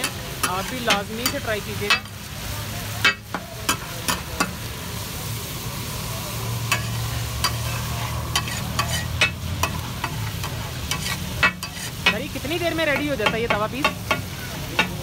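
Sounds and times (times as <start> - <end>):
chicken sizzling on griddle: 0.0 - 15.0
metal spatula scraping griddle: 6.6 - 15.0.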